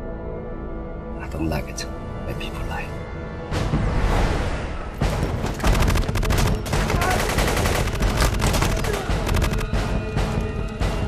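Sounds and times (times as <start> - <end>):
automatic gunfire bursts: 5.6 - 9.8.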